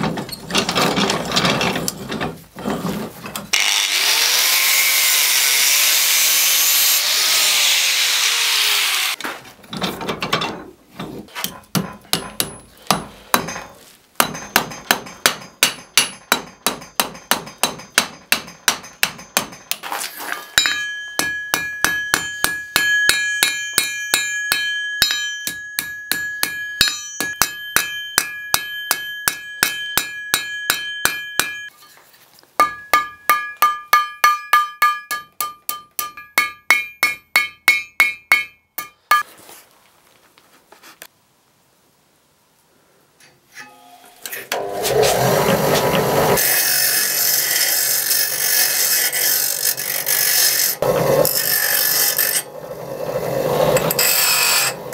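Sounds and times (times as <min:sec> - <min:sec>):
hammer striking steel on anvil: 0:11.4 - 0:19.8, 0:20.5 - 0:31.8, 0:32.6 - 0:39.3
anvil ringing: 0:20.5 - 0:31.8, 0:32.6 - 0:39.2.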